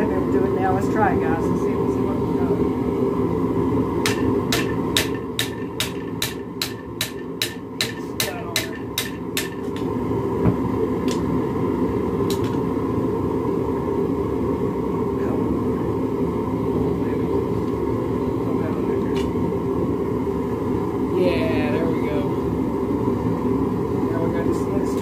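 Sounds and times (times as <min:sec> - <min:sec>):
steady drone: 0:00.0 - 0:25.0
hammer striking hot metal: 0:04.0 - 0:09.9.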